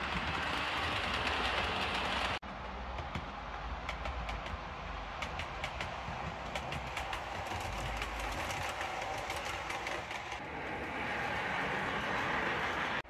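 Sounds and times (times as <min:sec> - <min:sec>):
model train whirring: 0:00.0 - 0:13.0
wheels clicking over rail joints: 0:00.0 - 0:13.0.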